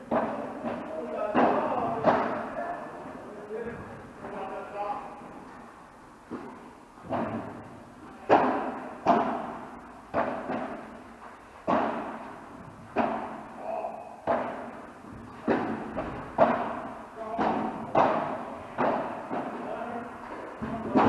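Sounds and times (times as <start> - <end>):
ball bouncing on court: 0.0 - 2.5, 6.3 - 13.5, 14.2 - 21.0
racket hitting ball: 0.0 - 2.5, 6.3 - 13.6, 14.2 - 21.0.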